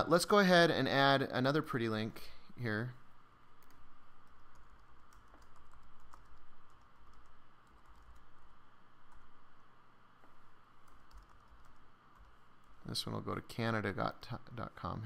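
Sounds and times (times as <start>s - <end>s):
typing on computer keyboard: 3.6s - 8.4s, 10.8s - 12.8s.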